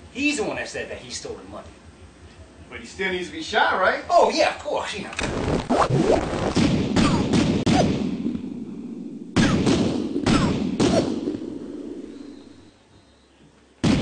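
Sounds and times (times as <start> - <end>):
pistol shots with echo: 6.6 - 8.5, 9.3 - 12.2.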